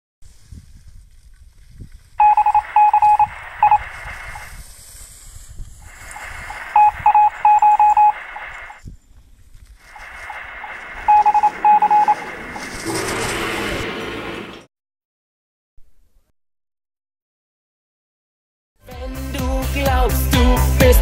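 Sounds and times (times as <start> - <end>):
short morse-like beeps: 2.2 - 4.5, 5.9 - 8.8, 9.9 - 13.8
radio static: 2.2 - 4.6, 5.8 - 8.8, 9.8 - 14.6.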